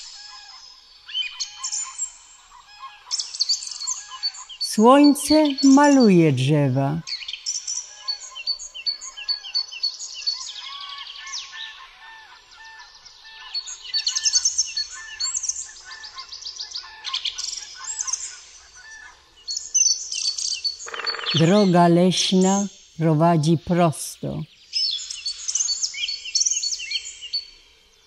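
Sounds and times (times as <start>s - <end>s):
songbirds singing: 12.5s - 28.0s.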